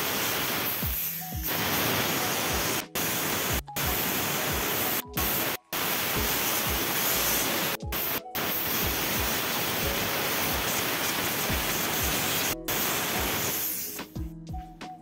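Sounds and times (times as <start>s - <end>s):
steam cleaner hissing: 0.0s - 14.2s
background music: 0.0s - 15.0s.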